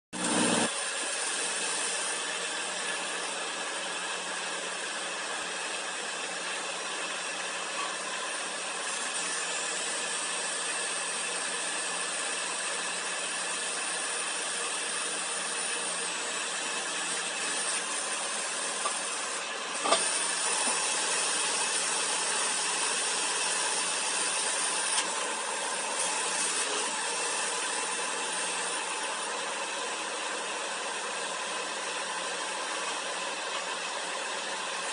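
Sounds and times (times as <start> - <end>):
core drill whirring: 0.2 - 34.9.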